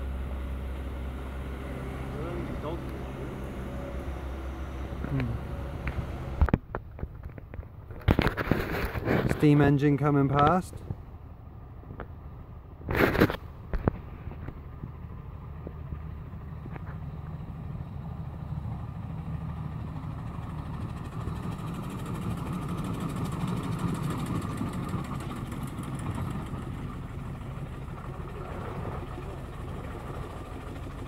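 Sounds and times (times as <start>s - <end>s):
steam engine rumble: 7.2s - 31.0s.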